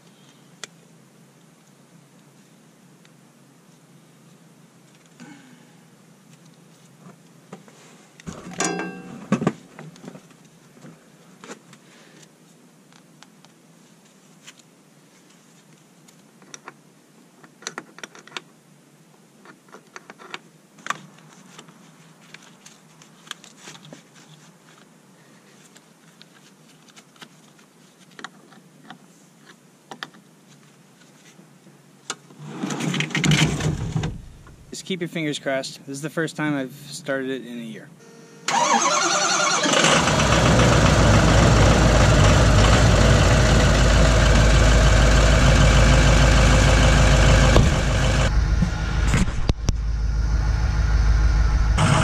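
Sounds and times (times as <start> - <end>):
tools and cable clamps clinking: 8.3 - 9.3
metal clatter: 8.3 - 9.4
rushing noise: 46.6 - 52.0.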